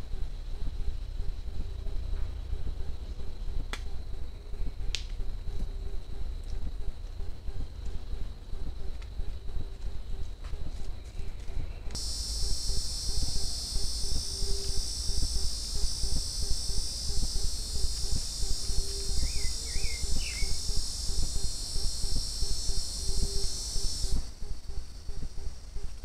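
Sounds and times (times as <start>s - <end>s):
low rumble and crackle: 0.0s - 26.0s
insect buzzing chorus: 11.9s - 26.0s
bird chirping: 18.1s - 20.7s.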